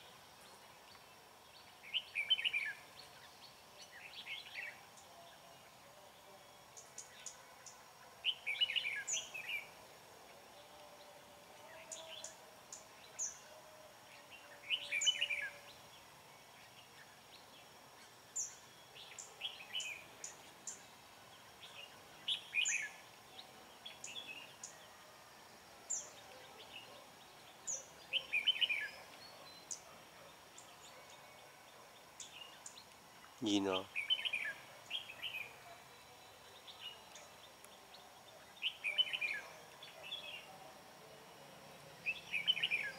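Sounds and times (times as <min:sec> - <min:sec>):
bird song phrases: 0:00.0 - 0:42.9.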